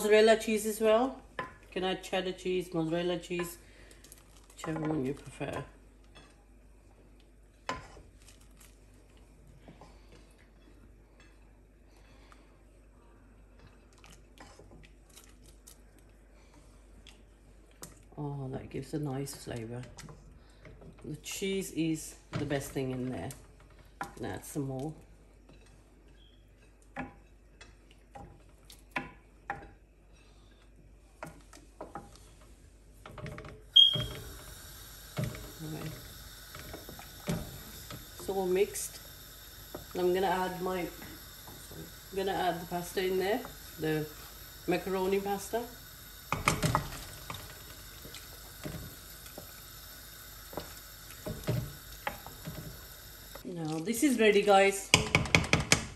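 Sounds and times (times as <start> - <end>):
wooden spatula scraping saucepan: 7.7 - 8.2.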